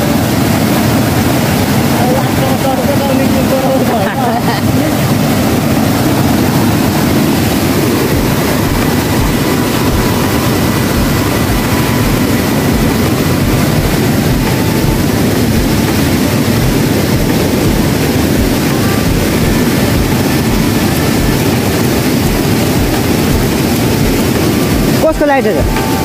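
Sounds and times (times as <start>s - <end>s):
stream rushing over rocks: 0.0s - 26.0s.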